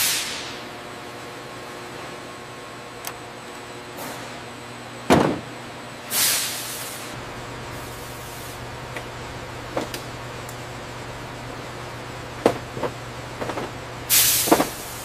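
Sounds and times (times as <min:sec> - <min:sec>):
hiss of released air: 0:00.0 - 0:00.6, 0:06.1 - 0:07.2, 0:14.1 - 0:15.0
electrical hum: 0:00.0 - 0:15.0.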